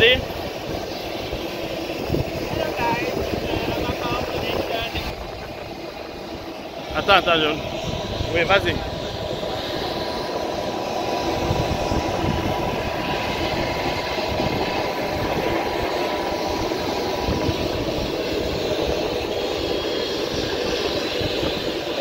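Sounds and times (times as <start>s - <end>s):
jet turbine whine: 0.0s - 22.0s.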